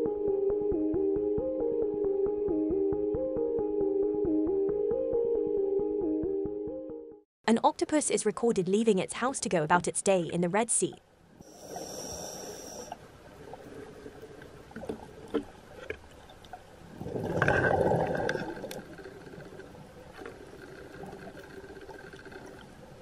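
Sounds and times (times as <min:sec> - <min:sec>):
underwater ambience: 0:11.0 - 0:23.0
gurgling exhaled bubbles: 0:16.9 - 0:19.0
faint clicks: 0:18.2 - 0:22.8.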